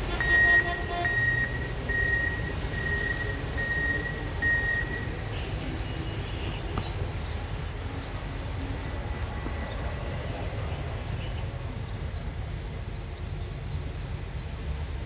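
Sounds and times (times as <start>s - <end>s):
horn toot: 0.0s - 2.1s
low engine rumble: 0.0s - 15.0s
high-pitched beeping: 0.1s - 5.1s.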